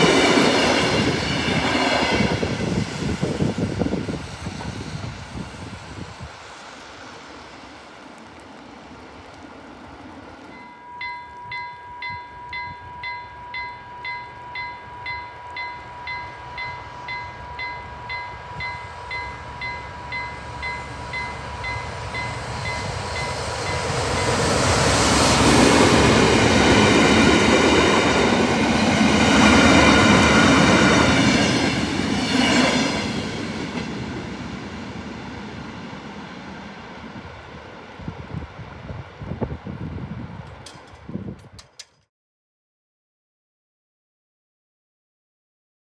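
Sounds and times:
diesel locomotive rumbling past: 0.0s - 41.2s
level crossing bell ringing: 10.6s - 16.4s.

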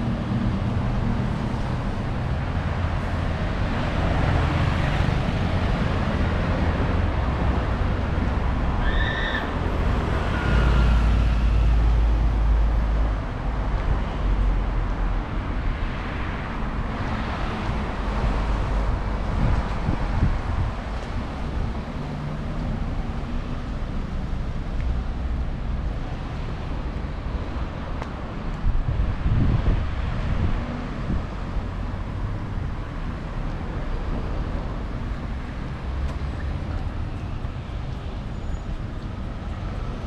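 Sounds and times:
passing cars: 0.0s - 40.0s
wind rumble on microphone: 12.1s - 22.1s, 26.8s - 40.0s.

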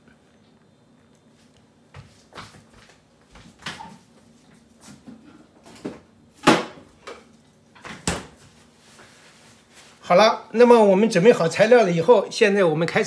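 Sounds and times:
kitchen knocks and clunks: 4.9s - 8.5s.

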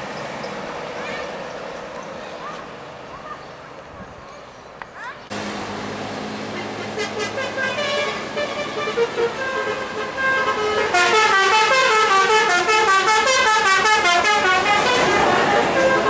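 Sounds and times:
multi-tone air horn tune: 6.5s - 16.0s.

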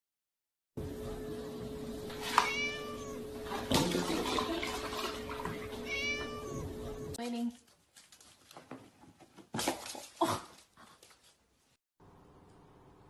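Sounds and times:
steady hum: 0.8s - 7.2s
kitten meowing: 2.4s - 3.2s, 5.8s - 7.1s
milk pouring into plastic tub: 3.5s - 5.7s.

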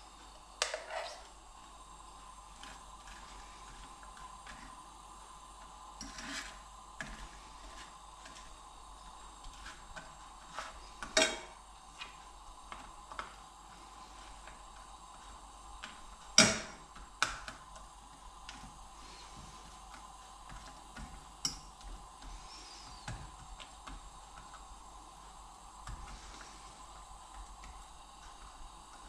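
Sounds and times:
faint steady hum: 0.0s - 29.0s
fork scraping frying pan: 0.6s - 1.2s, 6.0s - 7.2s.

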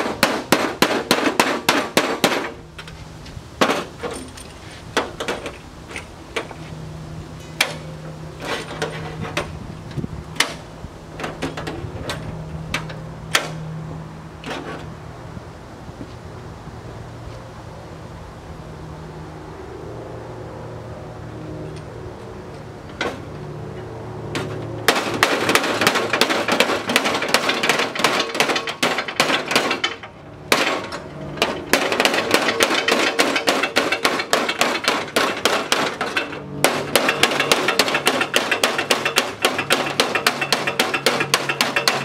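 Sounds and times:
hammer striking sheet steel: 0.0s - 2.6s, 24.4s - 42.0s.

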